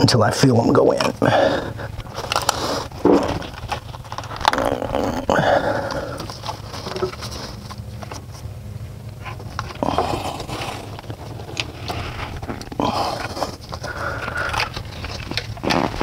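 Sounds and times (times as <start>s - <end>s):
steady low hum: 0.0s - 16.0s
rubbing and scraping: 1.0s - 8.5s, 9.2s - 16.0s.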